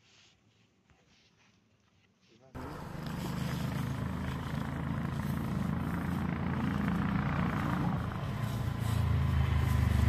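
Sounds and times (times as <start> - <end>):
vehicle engine humming: 2.6 - 10.0.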